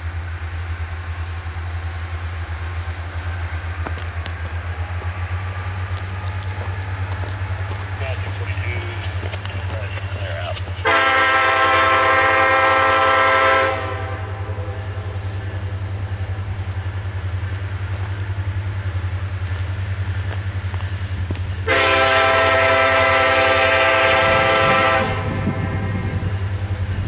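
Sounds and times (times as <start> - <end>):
diesel engine drone: 0.0 - 27.0
train air horn blasts: 10.8 - 15.4, 21.6 - 26.4.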